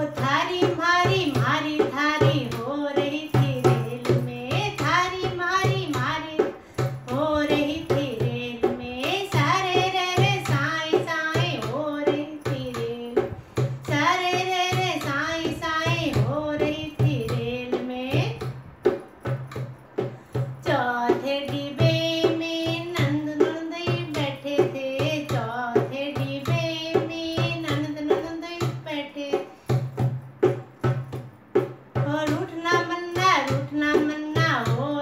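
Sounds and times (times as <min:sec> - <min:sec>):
woman singing: 0:00.0 - 0:18.6, 0:19.6 - 0:30.1, 0:31.9 - 0:35.0
hand drum beat: 0:00.0 - 0:35.0.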